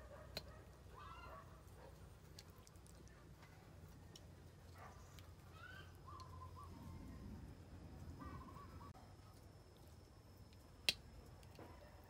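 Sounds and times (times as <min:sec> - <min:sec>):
faint bird chirps: 0:04.8 - 0:09.3.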